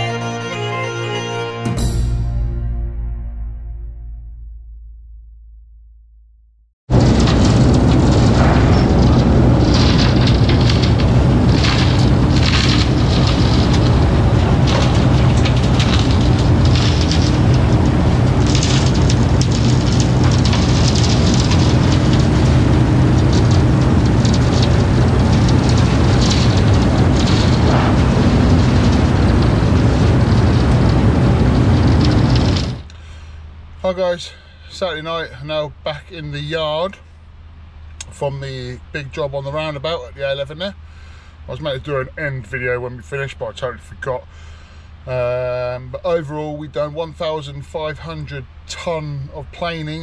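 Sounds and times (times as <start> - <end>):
asphalt pouring into metal truck body: 6.9 - 32.9
road planer engine drone: 6.9 - 42.5.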